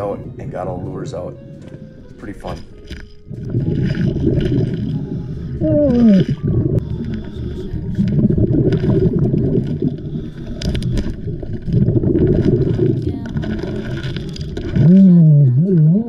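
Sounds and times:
underwater diver bubbles gurgling: 3.2s - 16.0s.

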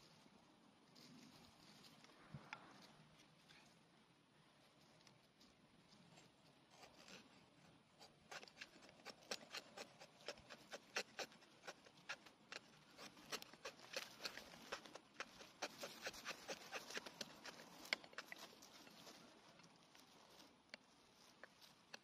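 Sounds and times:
blade shaving wooden stick: 8.0s - 19.2s, 21.4s - 22.0s.

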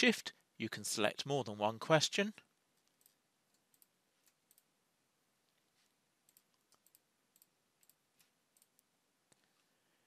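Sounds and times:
computer mouse clicks: 2.8s - 4.7s, 6.3s - 9.6s.

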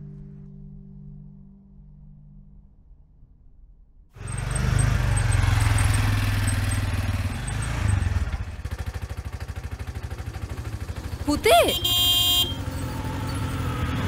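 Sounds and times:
auto-rickshaw engine putter: 4.2s - 14.0s.

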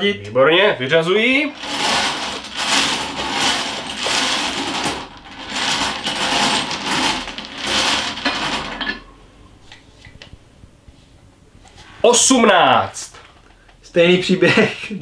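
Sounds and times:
balls rattling in bingo cage: 1.5s - 9.1s.

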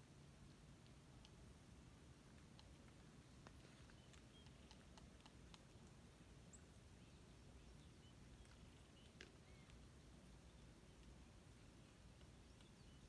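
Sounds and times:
soft clicks: 0.4s - 1.4s, 2.3s - 6.0s, 8.3s - 9.9s, 10.5s - 13.0s.

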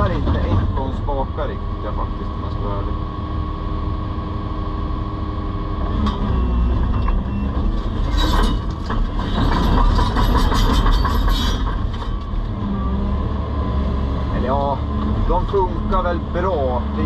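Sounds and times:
excavator engine humming: 0.0s - 17.0s
metallic clanking and rattling: 6.9s - 12.5s.

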